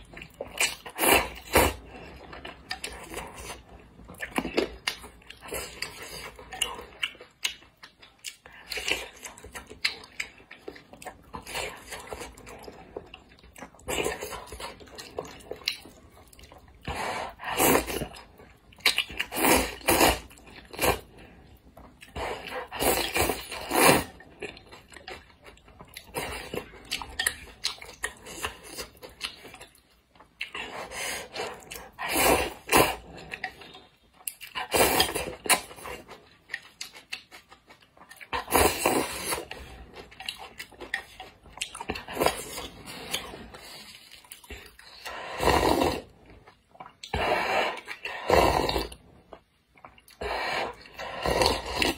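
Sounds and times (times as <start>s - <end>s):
chewing: 0.0s - 51.9s
person slurping noodles: 16.8s - 18.2s, 19.2s - 21.2s, 22.1s - 24.2s, 30.6s - 33.3s, 34.6s - 36.0s, 38.4s - 39.8s, 44.8s - 46.1s, 47.0s - 49.0s, 50.2s - 51.9s.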